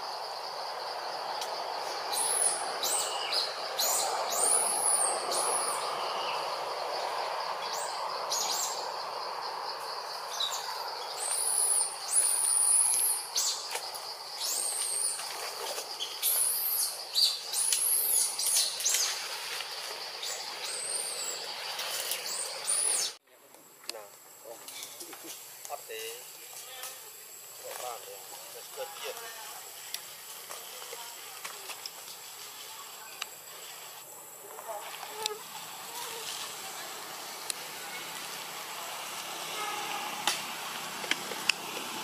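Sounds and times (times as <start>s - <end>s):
high insect whine: 0.0s - 42.0s
bird chirps: 20.2s - 23.2s.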